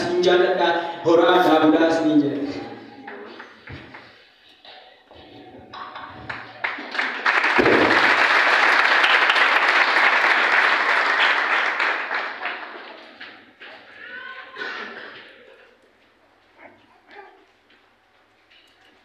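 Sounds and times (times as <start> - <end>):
audience applauding: 5.8 - 13.9.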